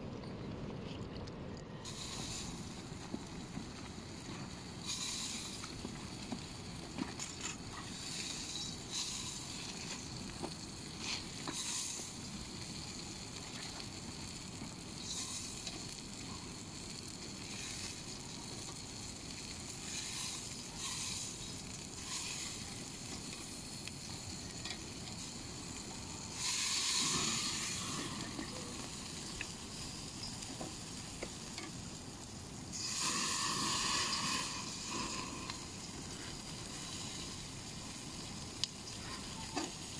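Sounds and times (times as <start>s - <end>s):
meat sizzling on a grill: 1.8s - 39.9s.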